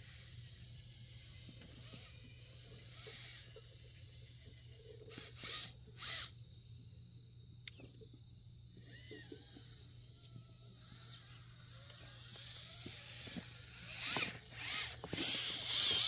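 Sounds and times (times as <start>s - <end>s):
toy car motor whirring: 0.0s - 6.6s, 7.6s - 8.1s, 8.7s - 16.0s
sharp click: 7.6s - 8.0s.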